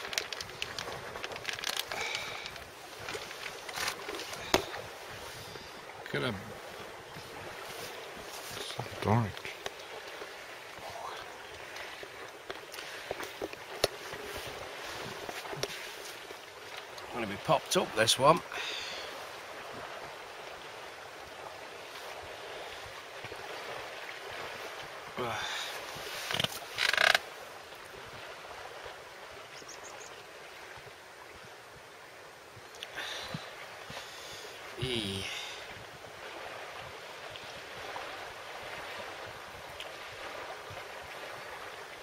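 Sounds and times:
gale wind rushing: 0.0s - 9.2s.

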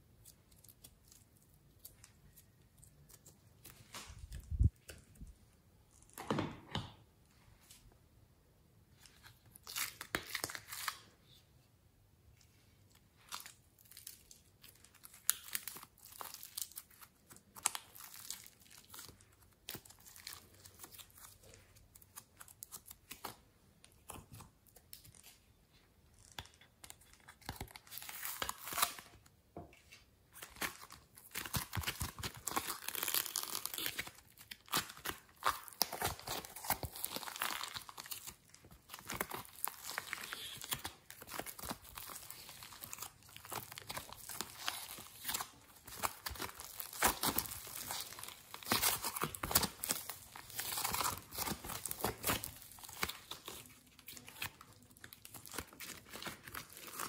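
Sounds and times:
sticky slime crackles and tearing: 0.0s - 5.0s, 13.2s - 25.4s, 30.4s - 57.0s.

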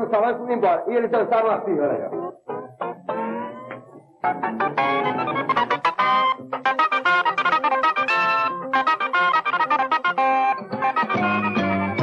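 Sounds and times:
fast dance music: 4.8s - 10.1s.

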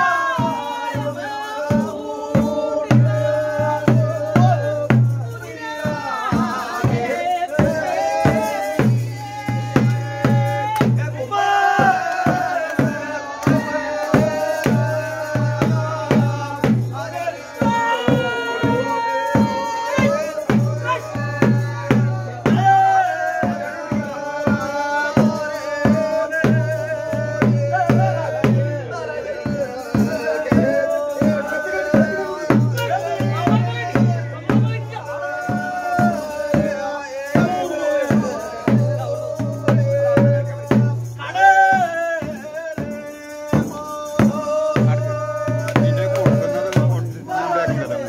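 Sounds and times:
drums beating fast: 0.0s - 48.0s
rattling percussion: 0.0s - 48.0s.

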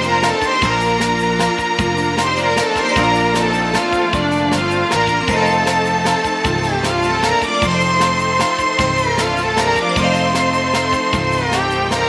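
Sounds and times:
percussive strokes: 0.0s - 12.0s
sustained keyboard chords: 0.0s - 12.0s.

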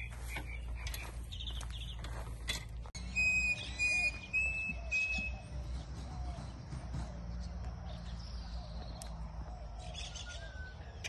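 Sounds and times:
bird whistling: 3.0s - 6.5s.

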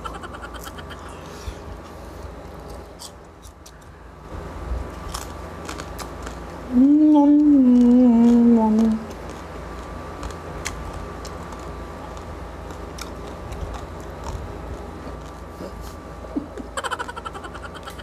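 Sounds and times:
man chewing crispy food: 4.8s - 6.7s, 7.3s - 16.2s
man humming mmm: 6.7s - 9.1s.

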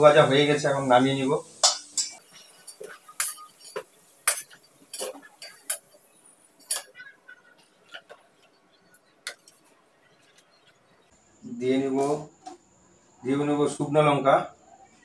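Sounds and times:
metal spatula clinking on metal: 1.6s - 6.0s, 6.6s - 7.1s.

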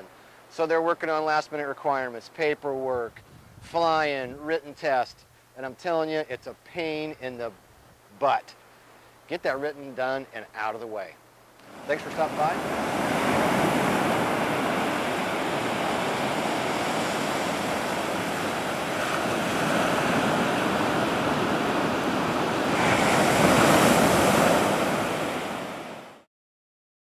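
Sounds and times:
ocean surf on sandy beach: 11.6s - 26.3s.

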